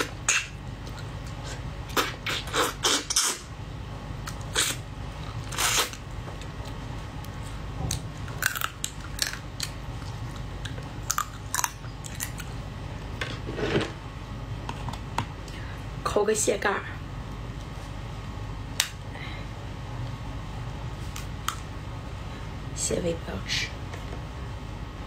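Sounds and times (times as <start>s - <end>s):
chewing and cracking crab shell: 4.2s - 12.6s.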